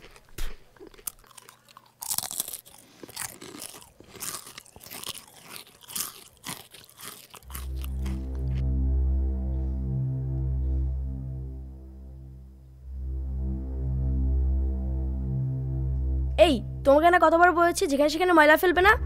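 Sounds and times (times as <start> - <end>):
foil packet crinkling: 0.0 - 8.2
potato chips crunching: 0.0 - 8.6
low pulsing hum: 7.6 - 19.0.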